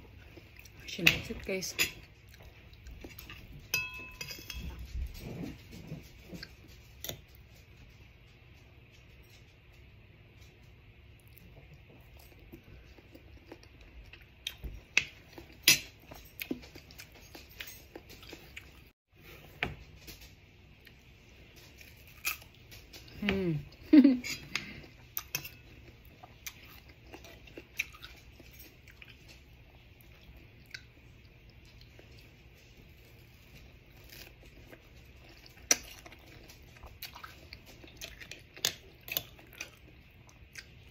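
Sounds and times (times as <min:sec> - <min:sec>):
metal spoon clinking and scraping: 0:03.3 - 0:05.3
person chewing crunchy fruit: 0:11.2 - 0:18.9, 0:20.7 - 0:40.9.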